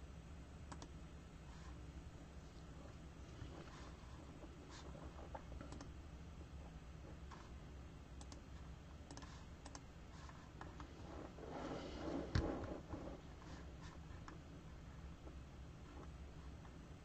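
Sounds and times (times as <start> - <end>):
low steady hum: 0.0 - 17.0
mouse and keyboard clicks: 5.3 - 5.9, 9.1 - 9.8.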